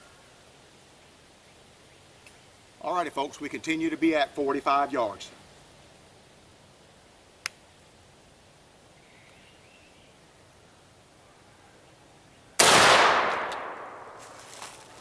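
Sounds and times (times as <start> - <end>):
shotgun shot: 12.6 - 14.2.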